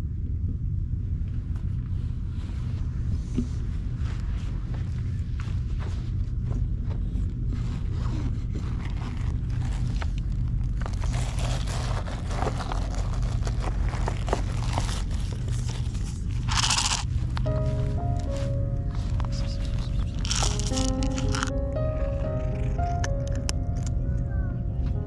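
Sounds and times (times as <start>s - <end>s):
steady low rumble: 0.0s - 25.0s
fabric bag rustling: 8.6s - 21.5s
plastic cup of dry food handled: 8.7s - 17.5s, 19.4s - 21.5s.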